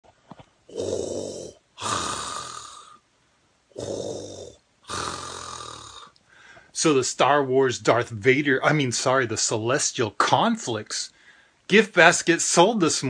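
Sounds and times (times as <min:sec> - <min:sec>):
man breathing through mask: 0:03.8 - 0:06.8.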